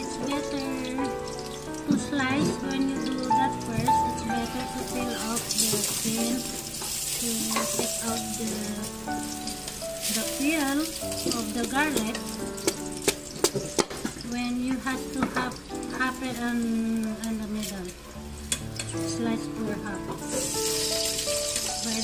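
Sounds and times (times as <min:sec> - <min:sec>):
background music with held notes: 0:00.0 - 0:22.0.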